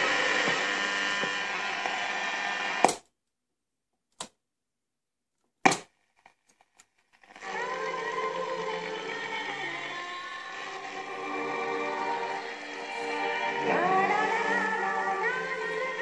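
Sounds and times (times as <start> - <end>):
portable radio playing: 0.0 - 3.0, 7.2 - 16.0.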